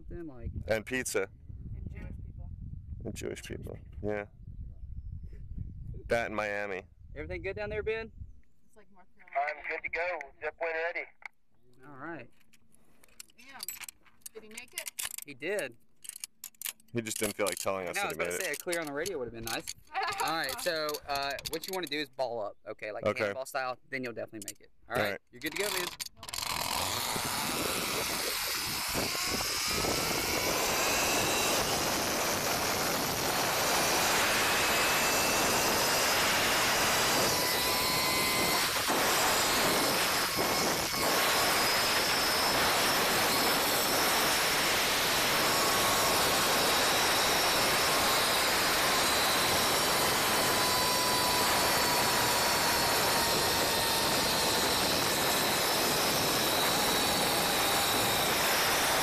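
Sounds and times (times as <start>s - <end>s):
wind rushing over microphone: 0.0s - 8.4s, 26.5s - 59.0s
zip-line trolley whine: 25.6s - 59.0s.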